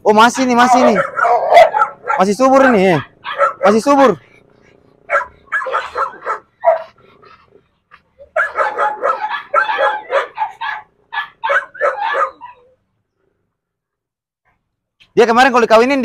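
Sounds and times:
dog barking and yipping: 0:00.1 - 0:12.8.

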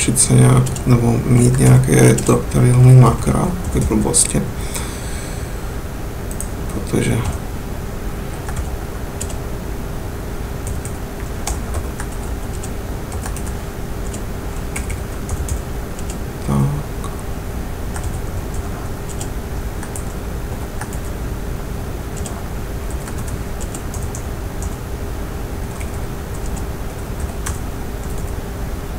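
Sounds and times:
low hum: 0:00.0 - 0:28.9
keyboard typing: 0:00.6 - 0:02.5, 0:08.4 - 0:09.4, 0:10.6 - 0:16.2, 0:17.9 - 0:20.1, 0:22.2 - 0:24.8, 0:25.7 - 0:28.4.

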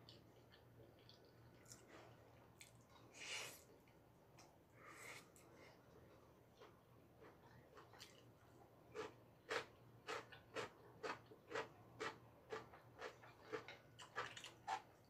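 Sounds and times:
chewing noodles: 0:00.0 - 0:03.0, 0:06.1 - 0:15.0.

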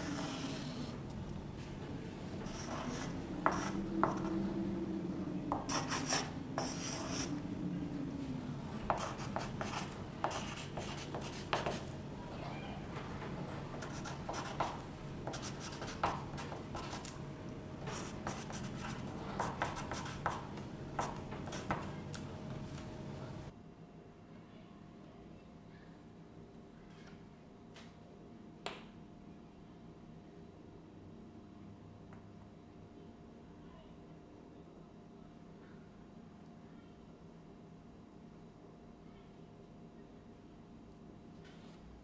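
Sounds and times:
pencil writing on paper: 0:00.0 - 0:00.9, 0:02.5 - 0:04.3, 0:05.6 - 0:07.3, 0:08.9 - 0:11.9, 0:13.8 - 0:17.1, 0:17.9 - 0:21.9.

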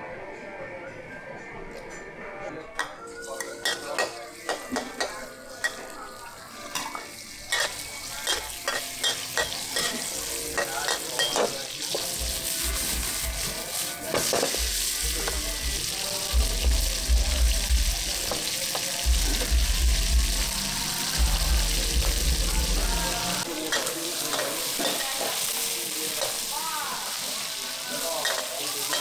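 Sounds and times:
frying sizzle: 0:03.2 - 0:29.0.

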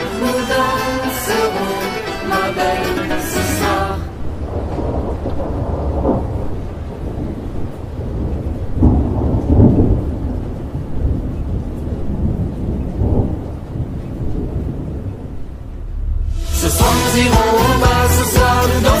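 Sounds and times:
music: 0:00.0 - 0:04.2, 0:16.0 - 0:19.0
steady rain: 0:00.0 - 0:19.0
rolling thunder: 0:04.2 - 0:17.1.

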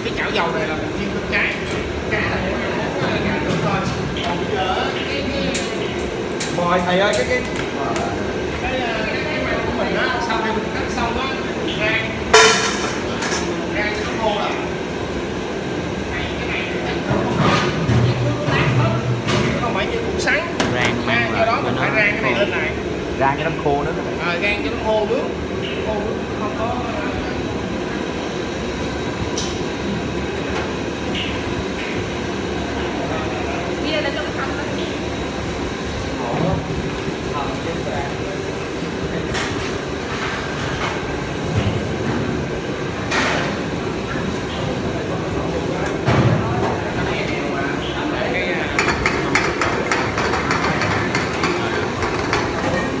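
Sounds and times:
gas burner roar: 0:00.0 - 0:53.0
rushing kitchen background: 0:00.0 - 0:53.0.

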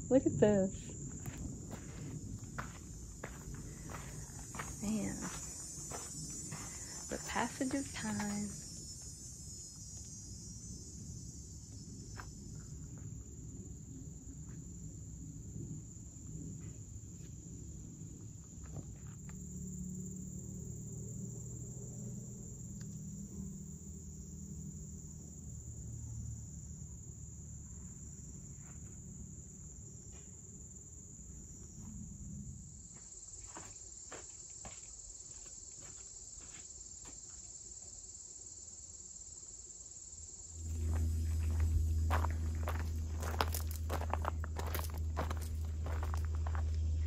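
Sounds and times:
insect trilling: 0:40.3 - 0:47.0
low rumble: 0:40.5 - 0:47.0.

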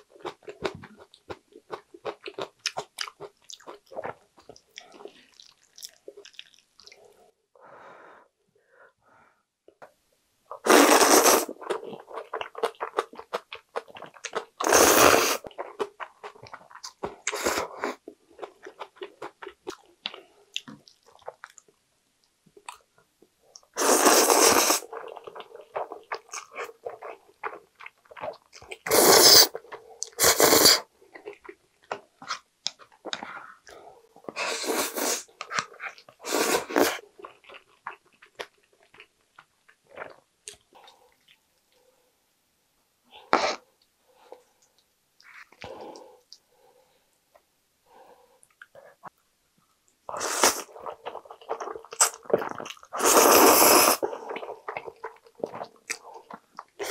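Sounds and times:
wet chewing: 0:00.0 - 0:07.0, 0:24.2 - 0:41.4, 0:50.4 - 0:56.9
loud noodle slurping: 0:10.6 - 0:11.6, 0:14.6 - 0:15.4, 0:23.8 - 0:25.9, 0:28.9 - 0:29.6, 0:30.2 - 0:30.9, 0:34.4 - 0:35.3, 0:36.2 - 0:37.0, 0:50.1 - 0:50.8, 0:51.6 - 0:54.9.

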